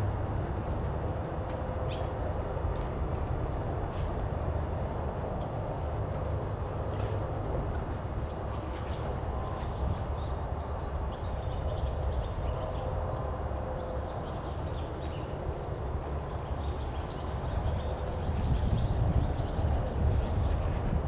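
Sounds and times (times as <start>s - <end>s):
low steady rumble: 0.0s - 21.0s
horse hooves in dirt: 0.4s - 10.7s.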